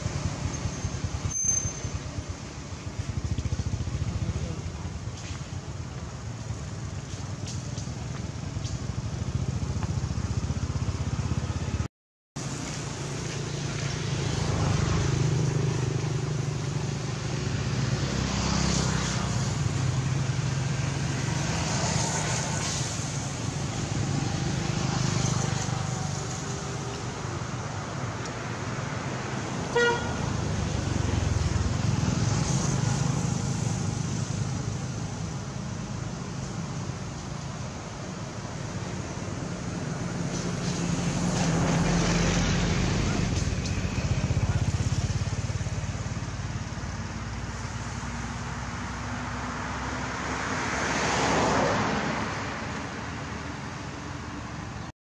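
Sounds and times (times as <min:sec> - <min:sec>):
road traffic engine rumble: 0:00.0 - 0:54.9
car horn toot: 0:29.7 - 0:30.2.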